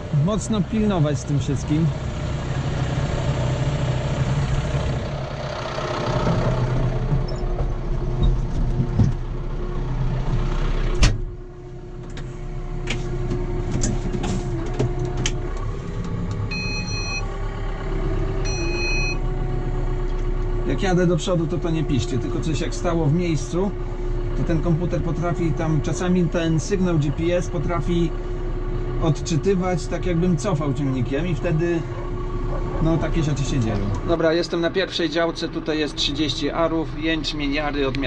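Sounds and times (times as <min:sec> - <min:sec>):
tractor engine running: 0:00.0 - 0:38.0
short electronic beeps: 0:16.5 - 0:17.2, 0:18.4 - 0:19.2.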